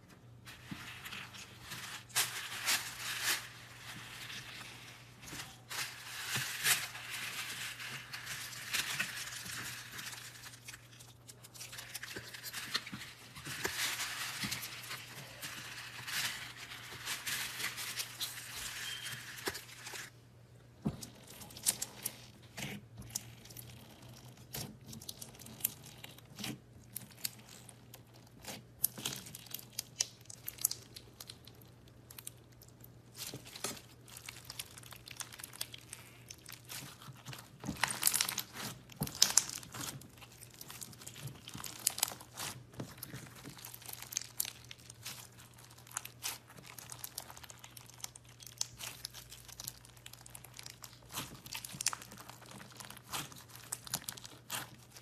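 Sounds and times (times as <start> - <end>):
slime beads crackling and popping: 23.1 - 55.0.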